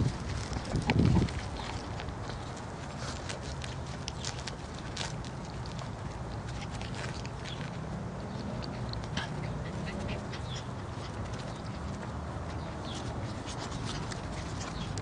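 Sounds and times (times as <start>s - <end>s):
puppies squeaking and yipping: 8.4s - 15.0s.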